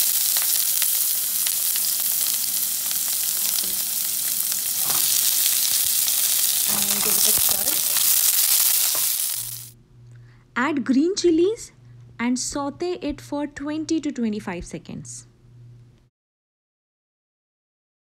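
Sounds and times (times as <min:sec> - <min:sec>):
onion sizzling in hot oil: 0:00.0 - 0:09.8.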